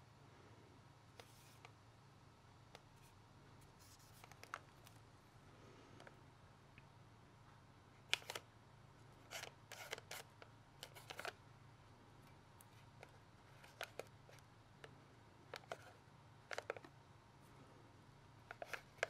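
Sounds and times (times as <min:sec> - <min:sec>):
low steady hum: 0:00.0 - 0:19.0
hands handling tubes: 0:18.4 - 0:19.0.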